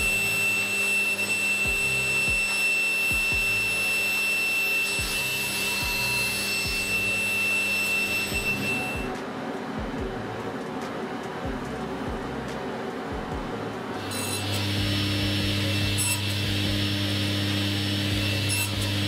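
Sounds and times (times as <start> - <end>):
background music beat: 0.0 - 4.3, 4.9 - 16.9
power drill motor whine: 0.0 - 9.2, 14.0 - 19.0.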